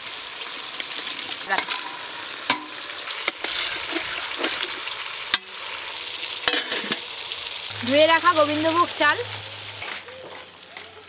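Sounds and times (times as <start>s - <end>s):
cooking hiss: 0.0s - 11.0s
metal pot and lid clanking: 0.8s - 5.6s, 6.4s - 7.2s.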